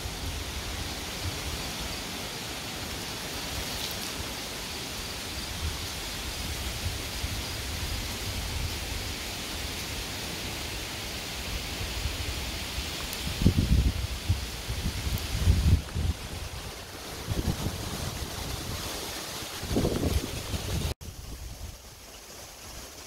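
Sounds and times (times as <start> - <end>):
wind rustling leaves: 0.0 - 23.0
wind rumble on microphone: 5.1 - 9.4, 11.4 - 22.1.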